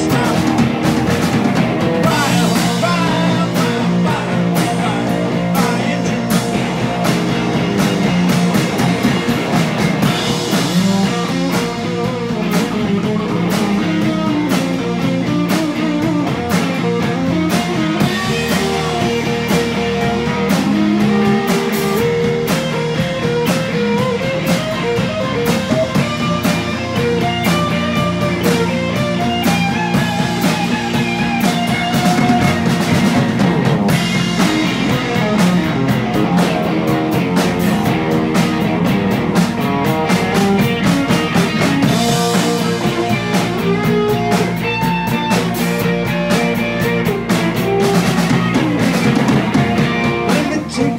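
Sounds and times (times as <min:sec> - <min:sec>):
bass guitar: 0:00.0 - 0:50.9
drum kit beat: 0:00.0 - 0:50.9
electric guitars: 0:00.0 - 0:50.9.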